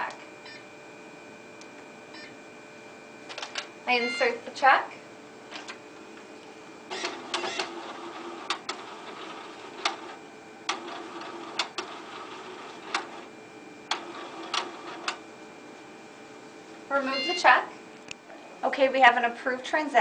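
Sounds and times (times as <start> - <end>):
printer motor whirring: 5.5 - 15.7.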